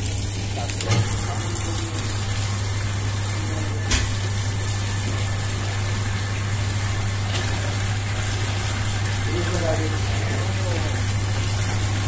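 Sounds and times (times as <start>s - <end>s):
dough mixer humming: 0.0s - 12.0s.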